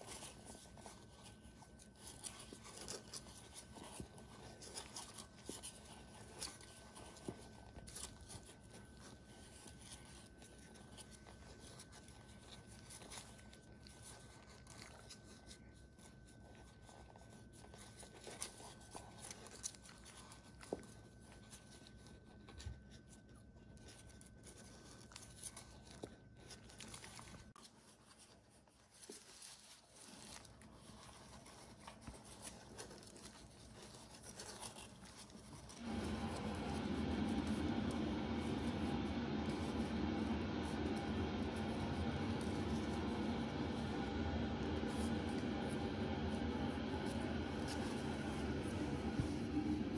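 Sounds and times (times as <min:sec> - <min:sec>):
faint soft clicks and rustles: 0:00.0 - 0:49.9
faint high whine: 0:35.7 - 0:49.9.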